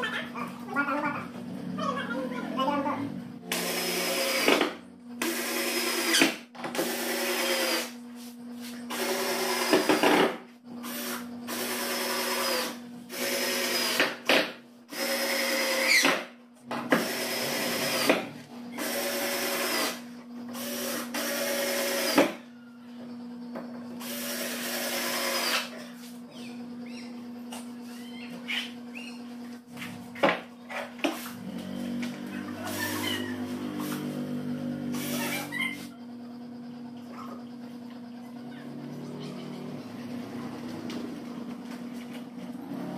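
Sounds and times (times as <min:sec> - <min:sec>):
steady low hum: 0:00.0 - 0:05.3, 0:22.4 - 0:42.9
electric drill driving into wood: 0:03.5 - 0:08.0, 0:08.9 - 0:22.4, 0:24.0 - 0:25.7.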